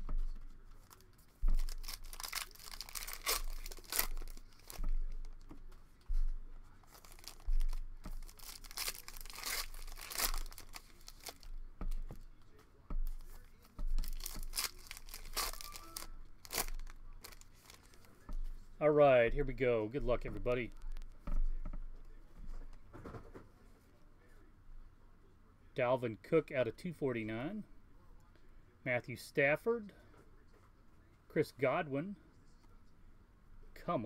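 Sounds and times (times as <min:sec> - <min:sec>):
foil wrappers tearing and crinkling: 0:00.8 - 0:05.2, 0:06.8 - 0:11.6, 0:14.0 - 0:18.0.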